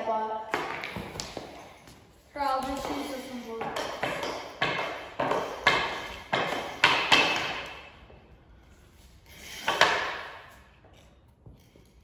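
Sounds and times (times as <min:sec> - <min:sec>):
hockey stick clacks with echo: 0:00.0 - 0:08.0, 0:09.6 - 0:10.7.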